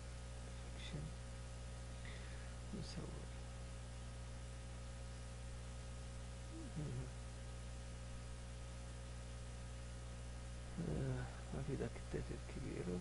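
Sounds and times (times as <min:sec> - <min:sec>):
low electrical hum: 0:00.0 - 0:13.0
murmured vocal sound: 0:06.5 - 0:07.2, 0:10.7 - 0:11.8.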